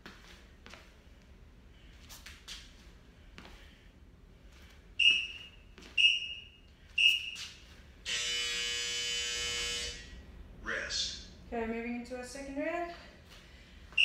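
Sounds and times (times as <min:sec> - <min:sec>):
long buzzer tone: 0:08.0 - 0:10.2.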